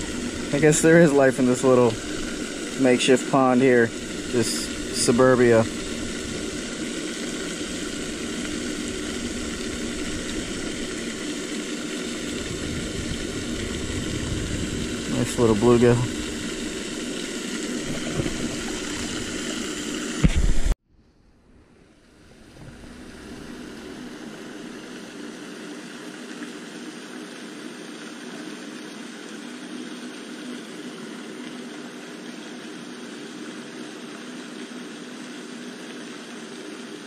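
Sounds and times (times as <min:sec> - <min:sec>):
distant motor hum and hiss: 0:00.0 - 0:37.0
loud bump: 0:22.4 - 0:24.4.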